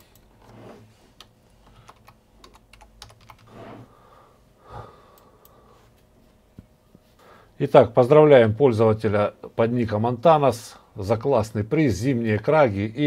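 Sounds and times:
keyboard typing clicks: 0:01.2 - 0:03.5.

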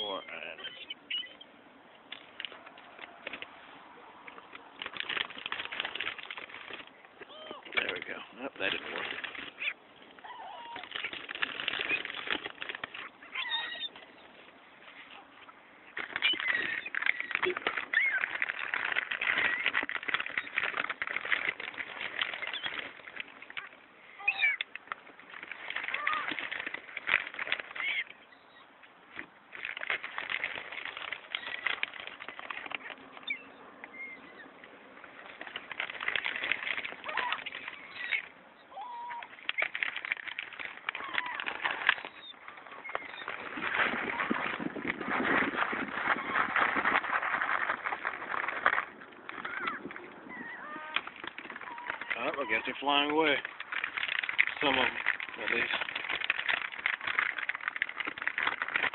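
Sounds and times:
gulls calling: 0:00.0 - 0:29.0, 0:30.4 - 0:44.9, 0:45.6 - 0:55.8
birds flapping and clicking: 0:00.0 - 0:58.9.

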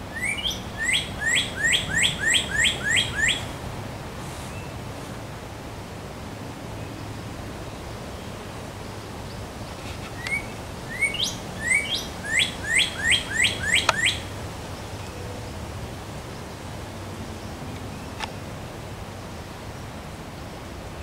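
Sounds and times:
background hiss: 0:00.0 - 0:21.0
cardinal singing whistles: 0:00.1 - 0:03.5, 0:10.2 - 0:14.3.

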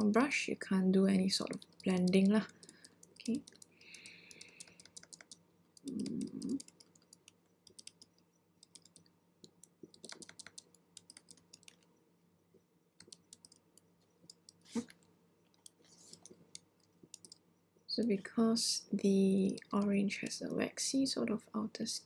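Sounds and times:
computer keyboard key taps: 0:01.5 - 0:11.8.

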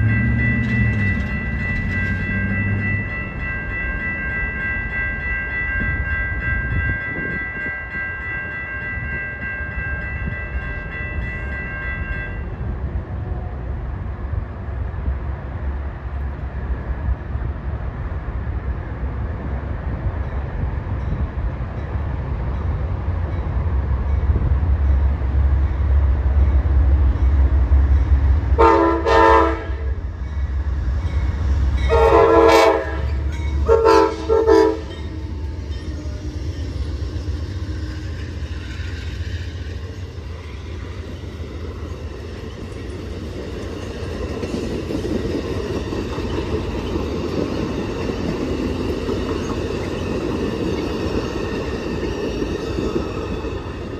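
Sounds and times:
diesel locomotive rumbling: 0:00.0 - 0:53.9
train horn blasts: 0:28.6 - 0:30.0, 0:31.8 - 0:36.3.

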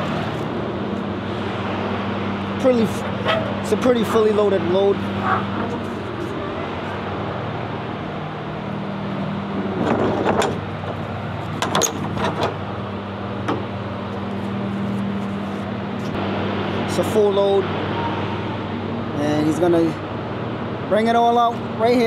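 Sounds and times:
idling engine hum: 0:00.0 - 0:22.0
trailer door metal clanks: 0:09.8 - 0:11.0, 0:11.6 - 0:12.6.

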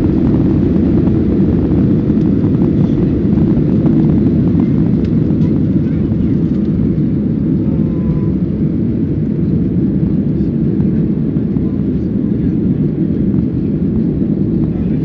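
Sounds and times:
jet engines roaring in cabin: 0:00.0 - 0:15.0.

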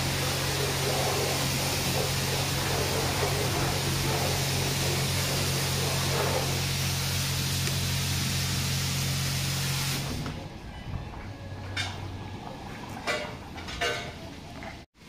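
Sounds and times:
loud spray hiss: 0:00.0 - 0:10.2.

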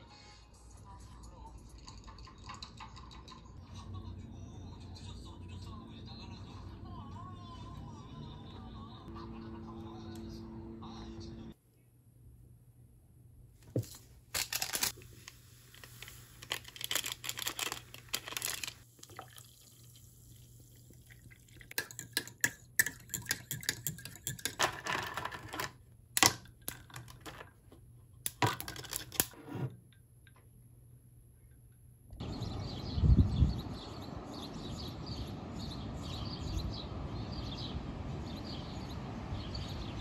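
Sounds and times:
packet rustling: 0:13.7 - 0:18.8
water pouring into glass mug: 0:19.0 - 0:24.0.

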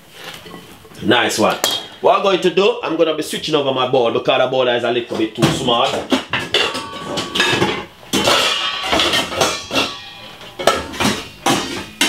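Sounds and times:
glass bowls clinking and knocking: 0:05.9 - 0:12.0.

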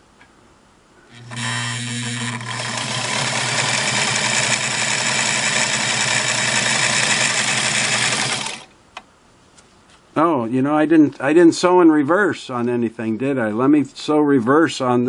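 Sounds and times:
sewing machine running: 0:01.1 - 0:08.7.

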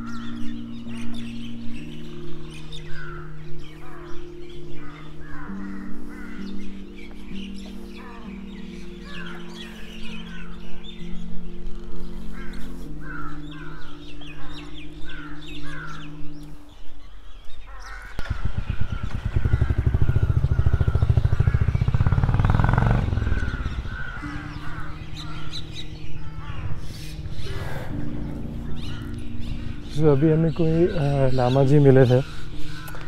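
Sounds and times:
birds calling: 0:00.0 - 0:33.0
loud low pulsing rumble: 0:18.2 - 0:31.2.

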